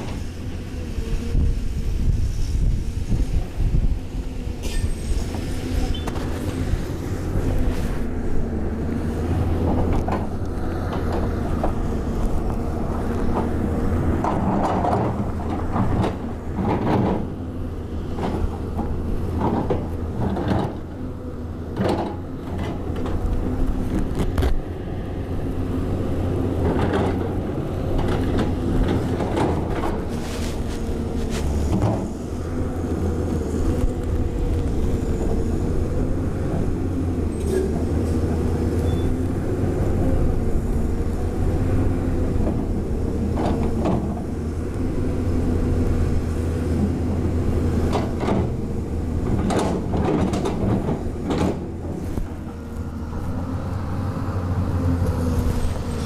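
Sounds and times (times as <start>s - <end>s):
excavator diesel engine running: 0.0s - 56.0s
bucket scraping earth and rock: 27.2s - 35.7s.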